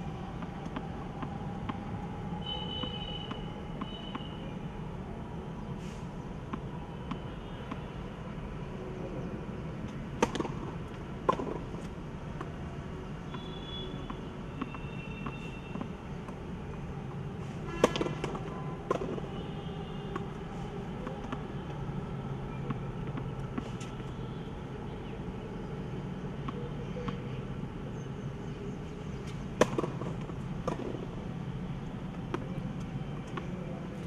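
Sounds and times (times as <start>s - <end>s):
racket striking tennis ball: 10.2s - 12.5s, 17.7s - 19.3s, 29.3s - 31.1s.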